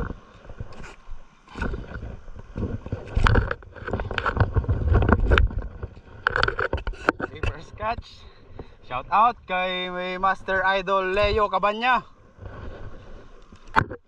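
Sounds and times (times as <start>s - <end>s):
wind buffeting microphone: 1.6s - 11.7s.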